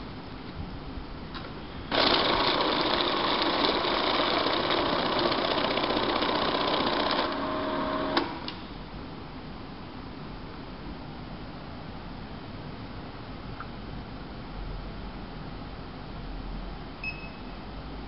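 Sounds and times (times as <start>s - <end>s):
banknote counter whirring: 1.9s - 8.6s
machine humming: 1.9s - 8.6s.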